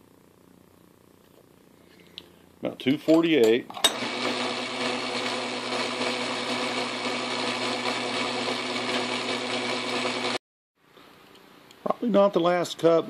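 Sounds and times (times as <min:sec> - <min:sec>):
metal lathe running: 0:03.9 - 0:10.4.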